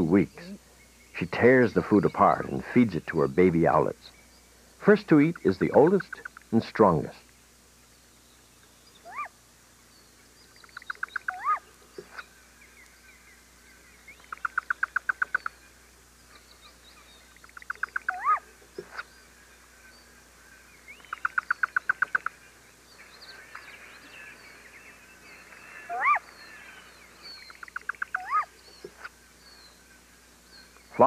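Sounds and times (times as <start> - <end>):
owl trills: 5.1 - 6.6, 8.8 - 9.4, 10.4 - 31.0
owl squeals: 9.0 - 9.3, 10.6 - 12.3, 14.1 - 15.6, 16.3 - 19.1, 20.9 - 22.4, 23.0 - 29.1.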